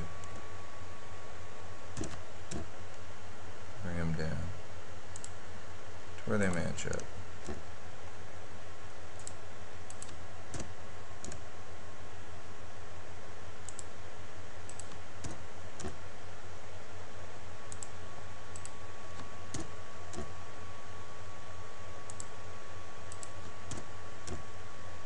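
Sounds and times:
low electrical hum: 0.0 - 25.0
mouse and keyboard clicks: 2.0 - 2.7.

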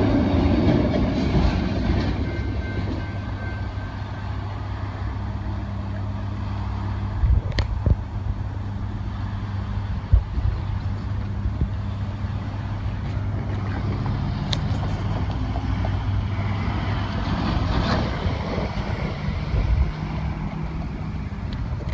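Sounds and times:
engine hum: 0.0 - 21.9
traffic passing: 0.0 - 21.9
wind noise on microphone: 7.0 - 21.9.

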